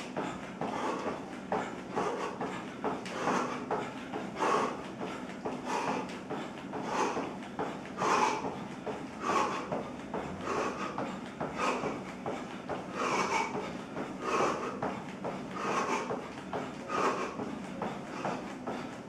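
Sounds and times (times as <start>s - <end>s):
man breathing hard: 0.0s - 19.0s.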